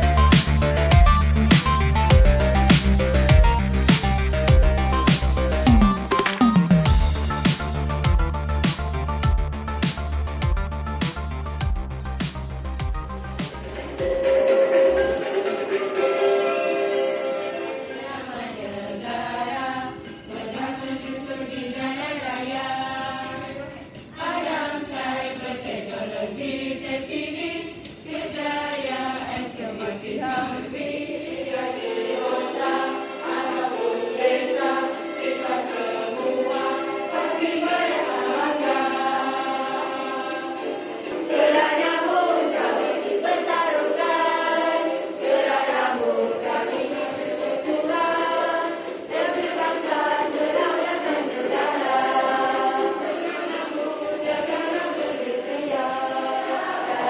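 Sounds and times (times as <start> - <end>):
girls singing together: 17.5 - 57.0.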